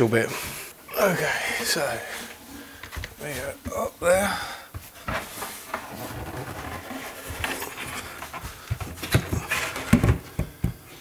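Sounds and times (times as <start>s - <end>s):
man breathing hard: 4.0s - 4.8s
wooden frame scraping and knocking: 4.8s - 10.6s.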